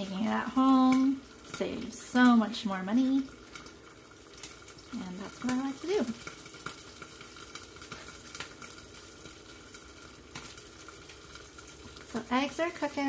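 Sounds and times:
eggs sizzling in a pan: 0.0s - 13.0s.

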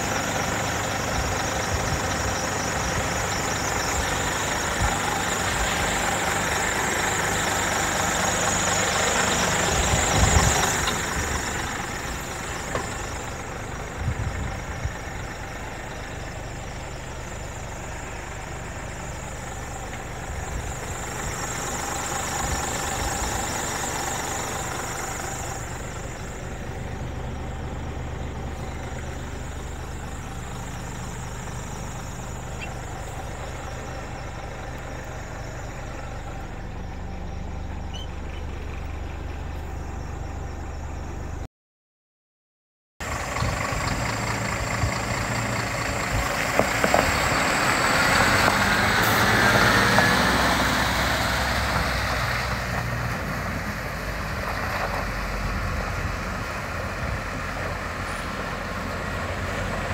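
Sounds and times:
truck pulling away on gravel: 0.0s - 41.3s, 43.0s - 59.9s
diesel truck engine idling: 0.0s - 41.5s, 43.0s - 59.9s.

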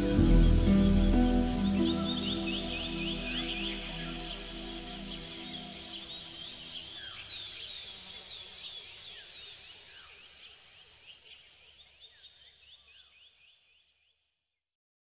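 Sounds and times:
slower falling bird calls: 0.0s - 7.6s
high-pitched insect drone: 0.0s - 7.8s.

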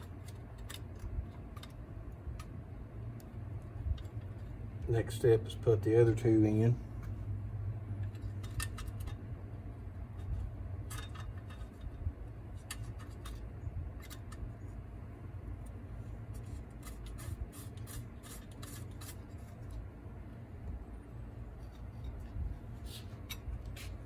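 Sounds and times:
low steady hum: 0.0s - 24.0s
allen key and bolts clicking: 8.0s - 9.2s, 10.2s - 12.0s.

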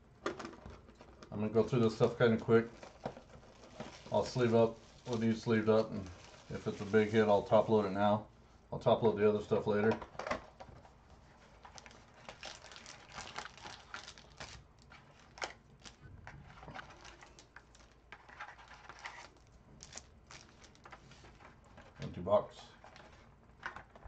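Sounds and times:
wrapper crinkling: 1.6s - 7.6s, 11.3s - 21.5s.

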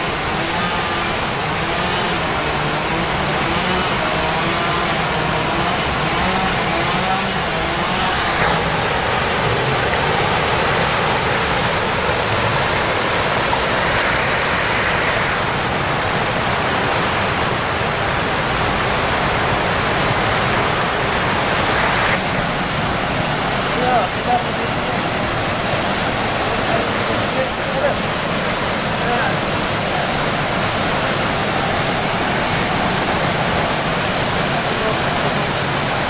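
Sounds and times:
waterfall rushing: 0.0s - 36.0s.

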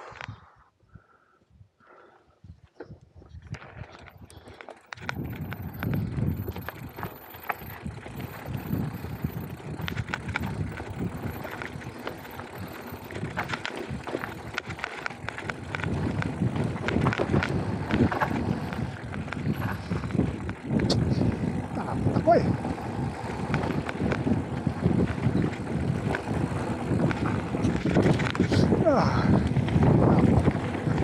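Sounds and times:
bike rattling with clicks: 3.4s - 31.0s
tyres crunching over gravel: 3.8s - 31.0s.

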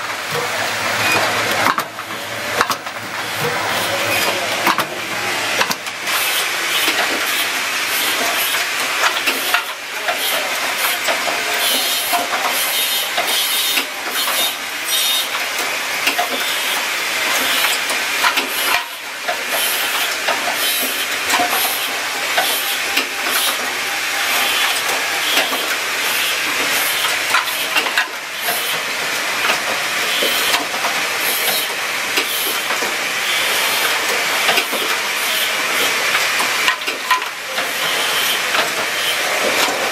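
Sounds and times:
machine clatter and clicking: 0.0s - 5.0s, 5.6s - 23.7s, 24.4s - 33.0s, 33.6s - 39.9s.

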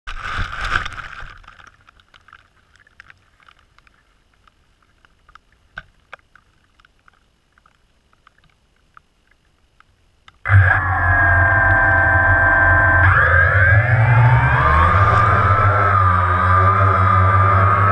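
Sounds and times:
faint scattered ticks: 1.8s - 10.4s
noisy rush: 10.4s - 17.9s
quadcopter motors whining: 10.5s - 17.9s.

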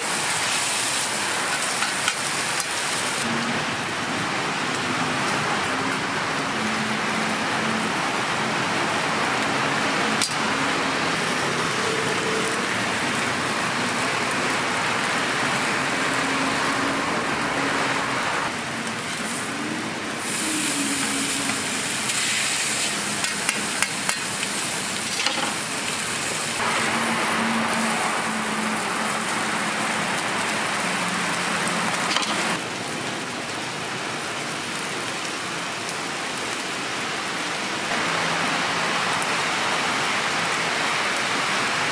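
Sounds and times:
food sizzling on griddle: 0.0s - 3.2s, 18.8s - 32.6s.

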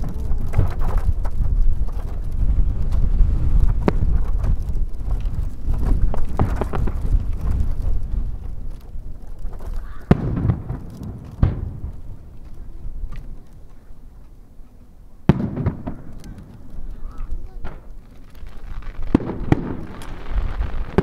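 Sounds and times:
fireworks sharp bangs: 0.0s - 4.6s, 9.6s - 13.2s, 15.2s - 21.0s
fireworks crackling pops: 0.0s - 21.0s.

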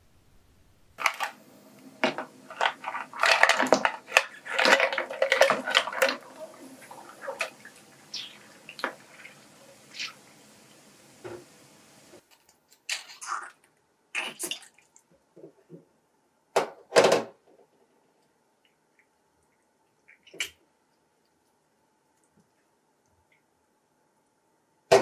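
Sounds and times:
water boiling in a pan: 1.0s - 12.3s.

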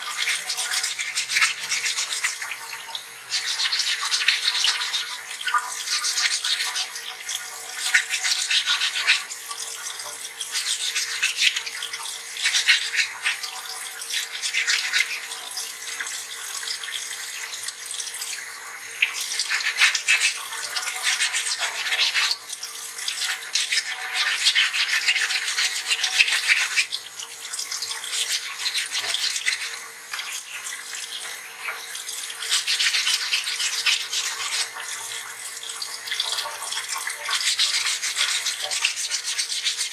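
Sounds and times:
tap water splashing: 19.0s - 39.9s.

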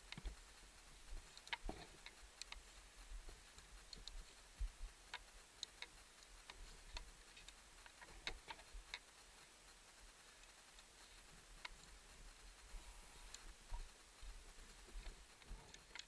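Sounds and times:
soft low bumps: 0.0s - 9.0s
faint gear clicks and ticks: 0.0s - 16.0s.

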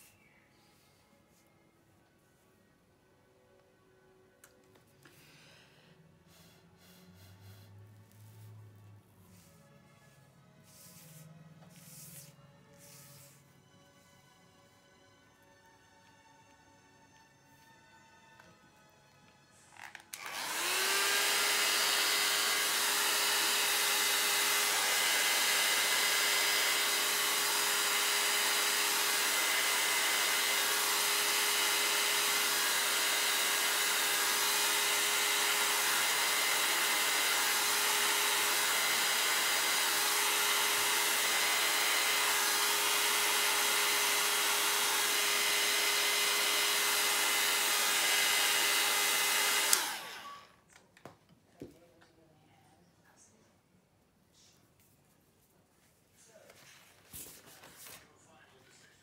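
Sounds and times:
hot-air blower whining: 20.1s - 50.6s.

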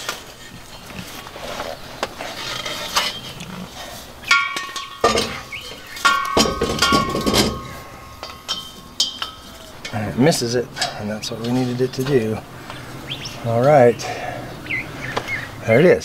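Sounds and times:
handling clicks and rustling: 0.0s - 15.6s
metallic knocks and clinks: 4.2s - 12.8s.

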